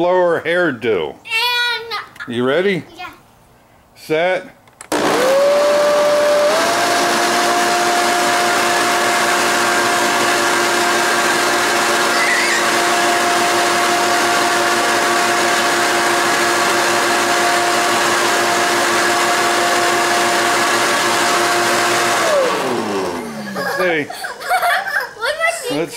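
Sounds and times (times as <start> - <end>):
leaf blower whining: 4.9 - 25.9.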